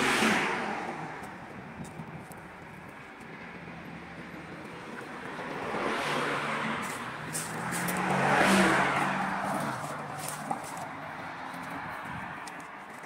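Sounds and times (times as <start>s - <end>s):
vehicle passing by: 5.2s - 12.4s.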